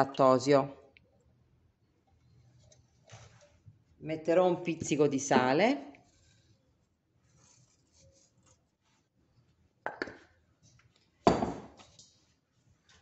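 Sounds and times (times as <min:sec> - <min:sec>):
kitchenware knocking and ringing: 0:11.3 - 0:11.7.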